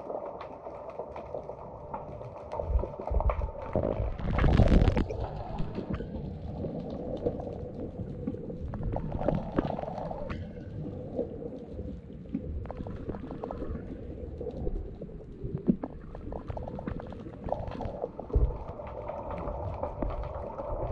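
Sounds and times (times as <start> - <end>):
sharp underwater clicks: 0.0 - 10.9
underwater rumble of moving water: 0.0 - 20.9.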